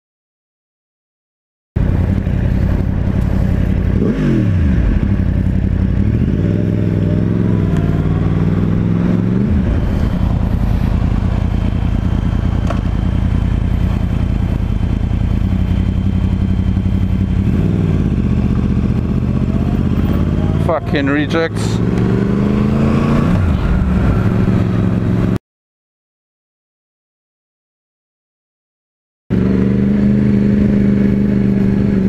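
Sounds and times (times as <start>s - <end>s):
motorcycle engine revving: 1.8s - 25.4s, 29.3s - 32.0s.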